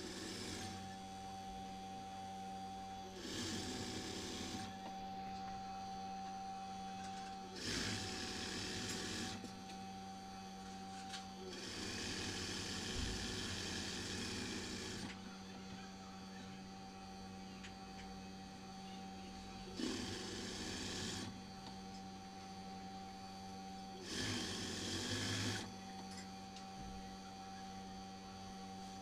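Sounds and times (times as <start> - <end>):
sewing machine stitching: 0.0 - 0.8, 3.2 - 4.7, 7.6 - 9.4, 11.5 - 15.1, 19.8 - 21.3, 24.0 - 25.7
steady hum: 0.0 - 29.0.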